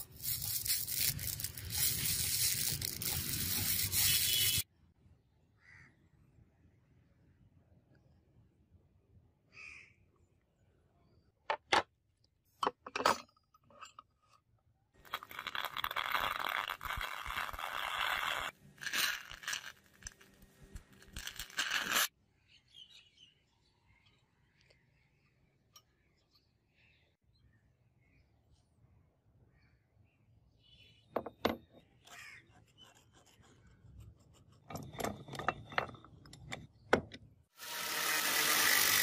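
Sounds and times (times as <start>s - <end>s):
arc welding crackling: 0.0s - 4.6s.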